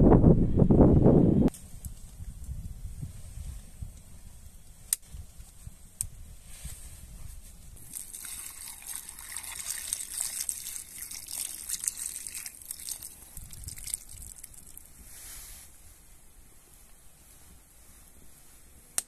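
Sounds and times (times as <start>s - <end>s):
water pouring and splashing: 7.8s - 14.9s.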